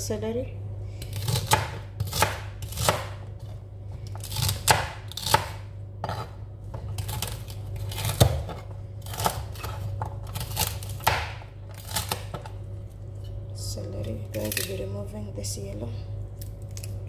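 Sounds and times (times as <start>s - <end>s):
steady low hum: 0.0s - 17.0s
knife chopping on cutting board: 1.1s - 3.2s, 4.1s - 7.4s, 8.0s - 12.5s.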